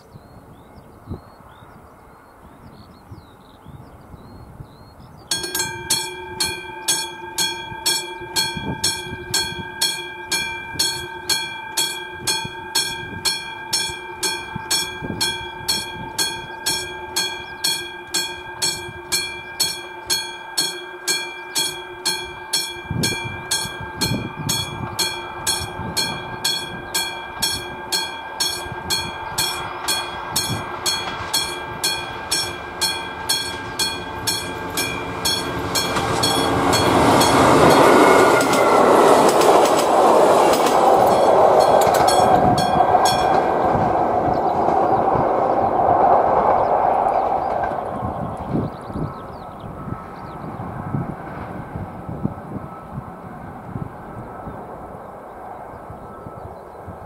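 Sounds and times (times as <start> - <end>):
level crossing bell ringing: 5.3 - 44.4.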